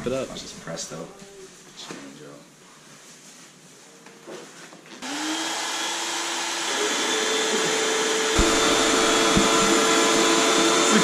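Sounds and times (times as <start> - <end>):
electric air pump running: 5.0 - 11.0
dull knocks: 8.4 - 10.0.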